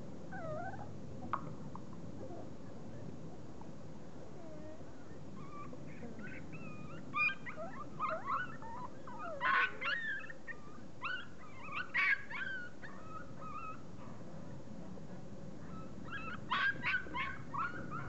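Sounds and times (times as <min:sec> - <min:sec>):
puppies whimpering and yipping: 0:04.6 - 0:13.8, 0:15.7 - 0:18.0.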